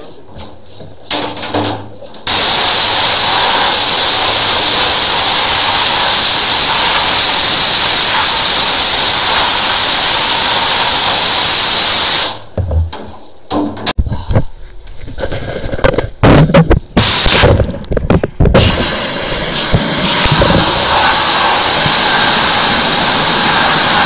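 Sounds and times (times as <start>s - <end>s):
high-pressure water jet hissing: 2.3s - 12.4s, 17.0s - 17.5s, 18.6s - 24.0s.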